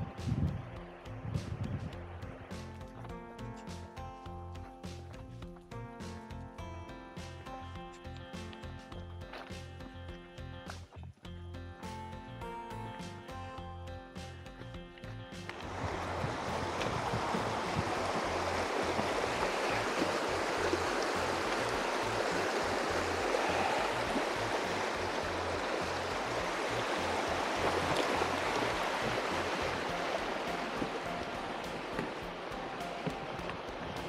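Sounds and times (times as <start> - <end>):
creek rushing over rocks: 15.4 - 34.0.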